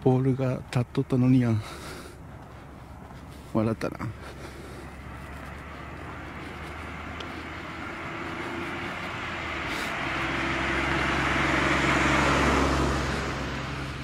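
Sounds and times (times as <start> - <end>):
car passing by: 4.3 - 14.0.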